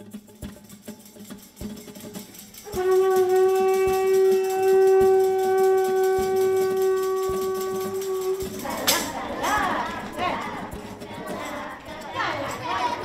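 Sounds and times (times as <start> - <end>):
conch shell trumpet note: 2.6 - 10.2.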